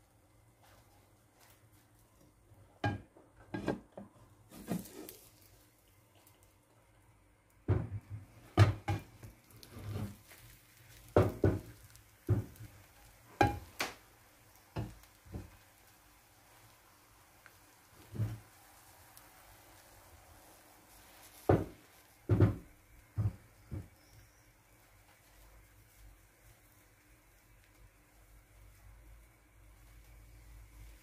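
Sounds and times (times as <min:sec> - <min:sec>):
pan scraping: 0:03.5 - 0:05.4, 0:08.6 - 0:10.5
cookware clattering on stovetop: 0:13.4 - 0:13.8.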